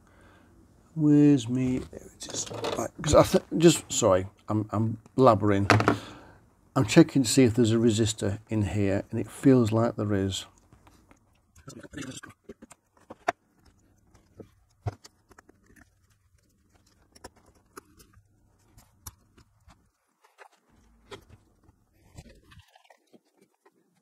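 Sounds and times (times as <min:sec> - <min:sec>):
sleeving crinkle: 0:10.6 - 0:24.0.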